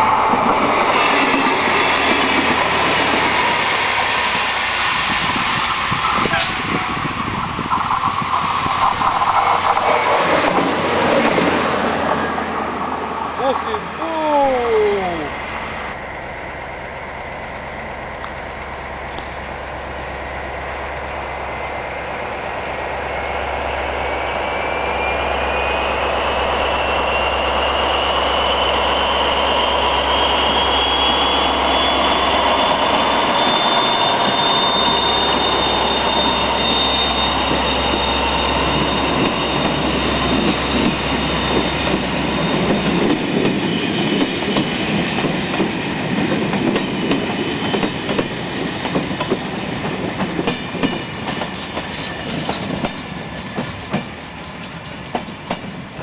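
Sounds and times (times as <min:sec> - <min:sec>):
diesel locomotive whine: 0:00.0 - 0:56.0
train wheels clickety-clack: 0:05.6 - 0:06.9, 0:07.7 - 0:11.6, 0:37.4 - 0:56.0.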